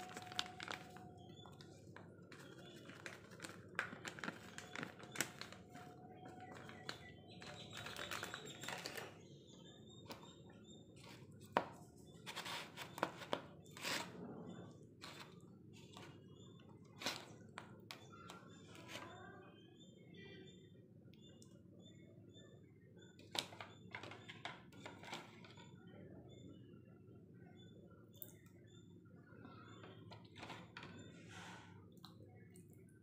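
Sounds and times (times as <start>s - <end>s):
spice containers clicking and tapping: 0.0s - 9.2s, 23.2s - 25.6s.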